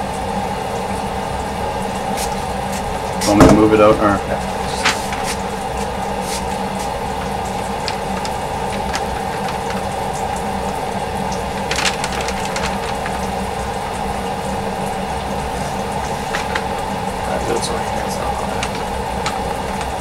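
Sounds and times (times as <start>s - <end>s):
steady machine hum: 0.0s - 20.0s
crackles of sticky mass on paper: 4.7s - 14.2s, 15.5s - 20.0s.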